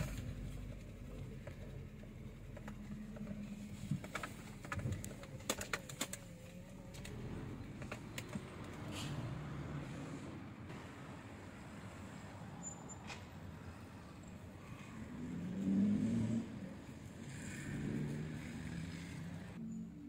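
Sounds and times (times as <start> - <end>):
car engine hum: 0.0 - 10.8.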